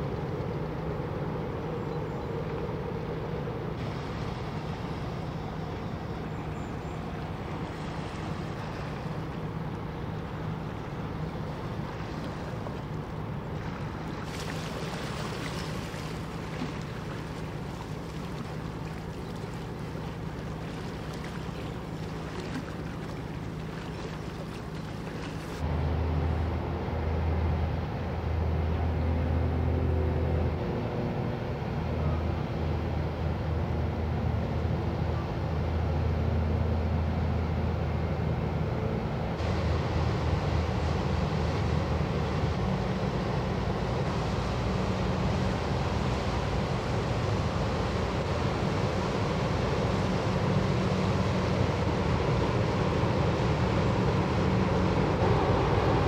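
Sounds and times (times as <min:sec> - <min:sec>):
rushing water: 0:00.0 - 0:25.6, 0:39.4 - 0:56.0
bow wave wash: 0:00.0 - 0:56.0
deep ship engine drone: 0:00.0 - 0:56.0
steady low hum: 0:00.0 - 0:56.0.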